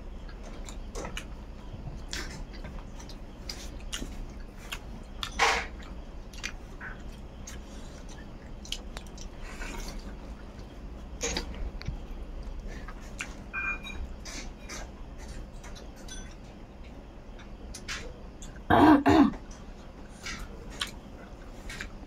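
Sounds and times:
person chewing: 0:02.0 - 0:13.5, 0:20.2 - 0:21.0.

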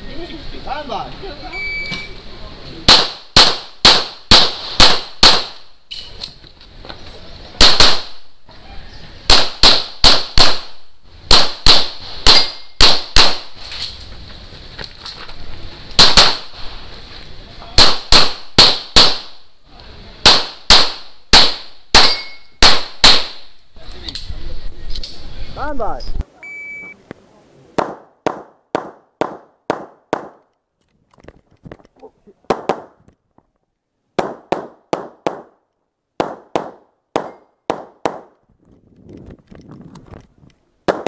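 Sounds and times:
pistol shots: 0:02.9 - 0:05.6, 0:07.6 - 0:08.2, 0:09.3 - 0:13.5, 0:16.0 - 0:16.5, 0:17.8 - 0:19.4, 0:20.2 - 0:23.5, 0:36.2 - 0:38.3.

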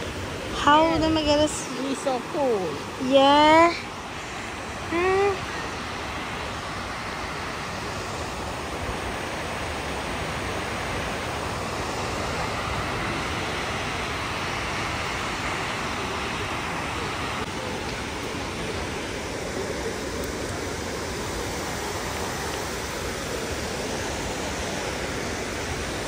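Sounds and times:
waterfall rushing into pool: 0:00.0 - 0:26.0
person's voice: 0:00.5 - 0:03.8, 0:04.9 - 0:05.6.

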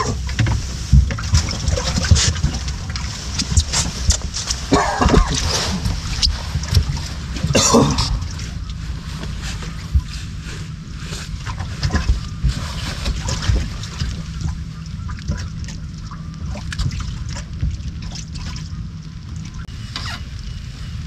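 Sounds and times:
water splashing against boat hull: 0:00.0 - 0:20.3
wind rumble on microphone: 0:00.0 - 0:21.0.

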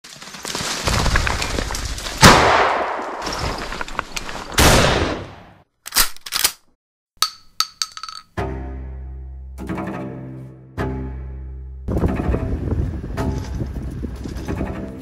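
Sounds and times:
gunshot blasts: 0:02.2 - 0:03.2, 0:04.6 - 0:05.5
light metallic clinks: 0:07.2 - 0:08.3
music: 0:08.3 - 0:15.0.

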